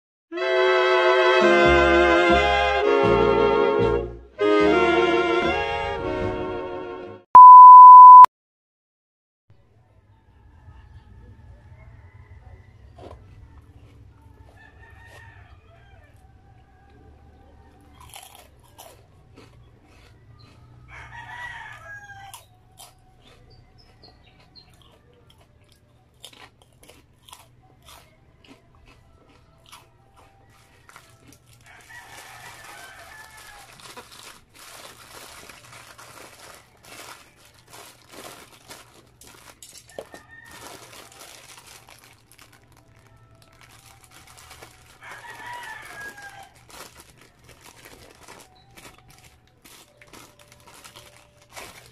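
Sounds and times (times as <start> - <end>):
crunchy chewing: 12.7 - 51.9
paper bag crinkling: 30.8 - 51.9.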